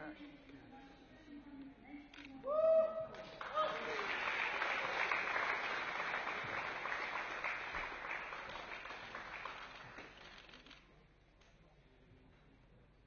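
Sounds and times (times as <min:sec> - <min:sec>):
audience applauding: 0:03.2 - 0:10.7.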